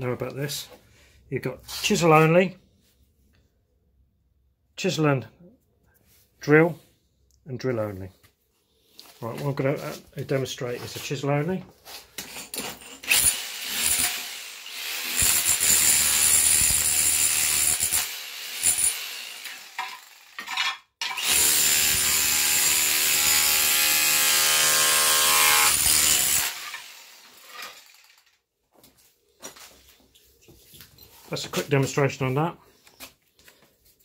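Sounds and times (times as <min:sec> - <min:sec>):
hammer drill chiselling floor tiles: 0:12.2 - 0:28.4
tile pieces knocking and scraping: 0:19.8 - 0:21.2.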